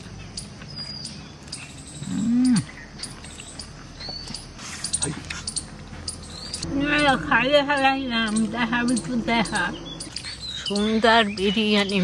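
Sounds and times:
faint high chirps: 0.3s - 12.0s.

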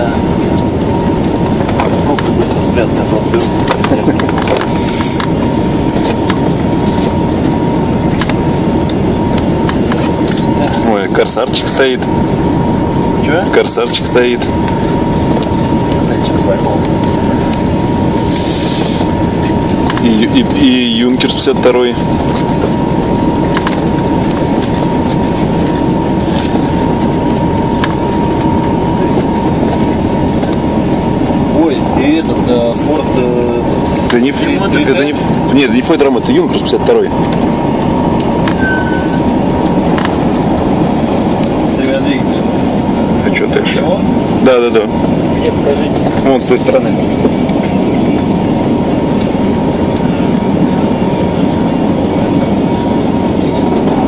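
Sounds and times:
radial aircraft engines droning: 0.0s - 54.0s
thin steady whine: 0.0s - 54.0s
thin steady tone: 38.6s - 39.3s.

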